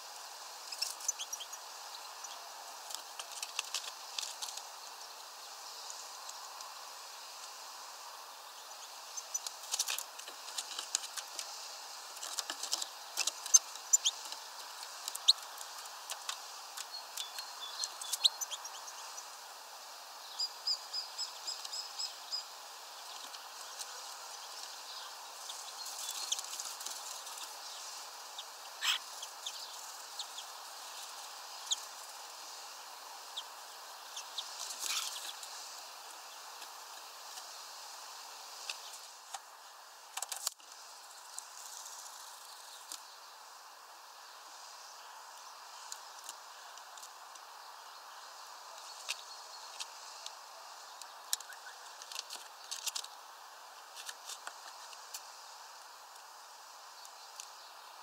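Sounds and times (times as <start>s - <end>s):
birds chirping: 0.6s - 2.5s, 12.3s - 35.7s.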